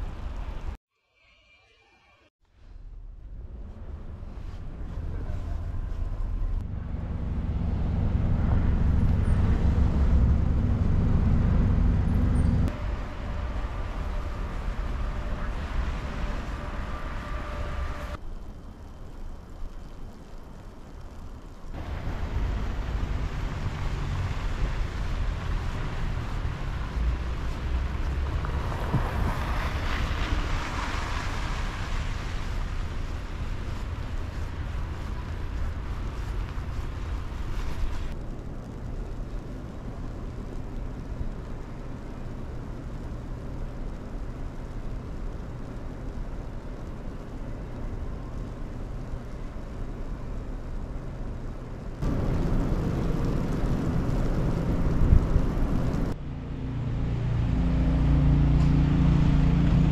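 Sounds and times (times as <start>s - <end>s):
traffic rumble: 0.0s - 0.8s, 2.6s - 59.9s
wind buffeting microphone: 52.0s - 56.2s.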